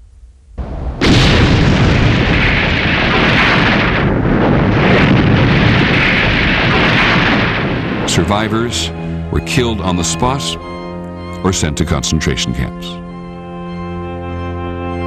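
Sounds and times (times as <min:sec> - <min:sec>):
building explosion and fire: 0:00.0 - 0:09.4.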